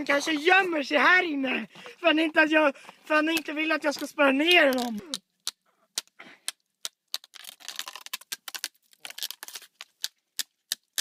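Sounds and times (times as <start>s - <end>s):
stick cracking ice and snow: 3.1s - 11.0s.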